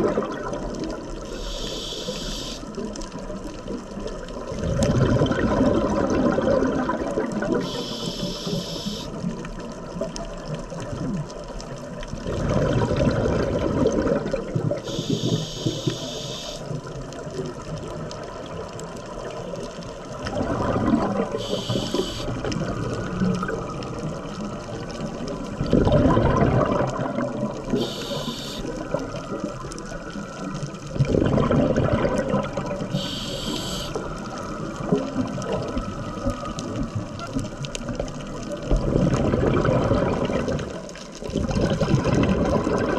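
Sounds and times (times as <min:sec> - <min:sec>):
exhaled air bubbling underwater: 0:00.0 - 0:42.9
regulator hiss: 0:01.3 - 0:02.7, 0:07.6 - 0:09.1, 0:14.8 - 0:16.6, 0:21.4 - 0:22.4, 0:27.8 - 0:28.7, 0:32.9 - 0:34.0.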